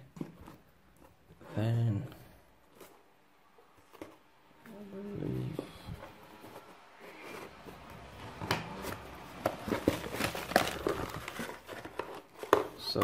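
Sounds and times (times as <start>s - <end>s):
cardboard sliding and rubbing: 5.2s - 12.6s.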